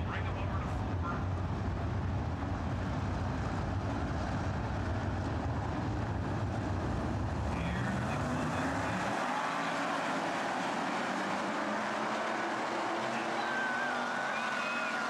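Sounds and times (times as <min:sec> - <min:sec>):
racing car engines: 0:00.0 - 0:15.0
car passing close: 0:07.5 - 0:15.0.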